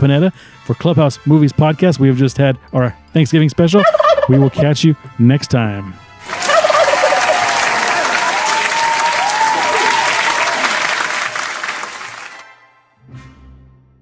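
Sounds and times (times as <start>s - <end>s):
applause: 6.2s - 12.6s.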